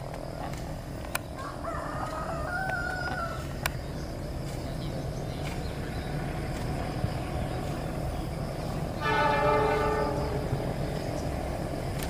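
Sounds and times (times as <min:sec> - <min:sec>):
train rumbling: 0:00.0 - 0:12.0
locomotive horn blast: 0:08.9 - 0:11.0.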